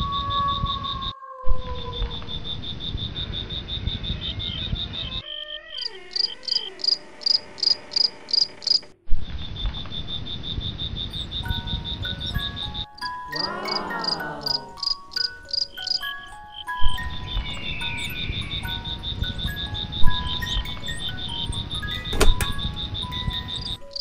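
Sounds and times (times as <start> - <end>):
rapid cricket chirping: 2.0 - 24.0
slower higher chirping: 5.0 - 8.8, 11.0 - 24.0
wavering tones: 11.2 - 24.0.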